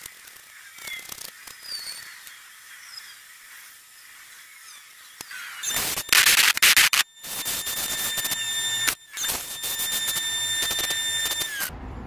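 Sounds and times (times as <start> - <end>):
bench grinder grinding metal: 5.3 - 11.7.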